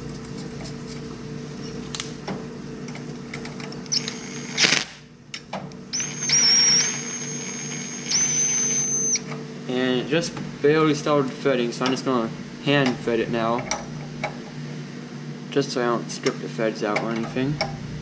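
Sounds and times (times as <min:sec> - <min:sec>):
impact driver whine: 0:03.8 - 0:05.1, 0:05.9 - 0:09.4.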